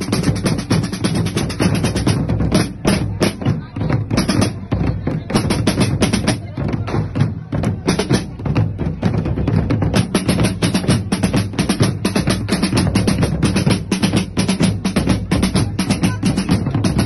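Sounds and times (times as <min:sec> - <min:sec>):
deep bass drum: 0:00.0 - 0:17.0
drum troupe playing: 0:00.0 - 0:17.0.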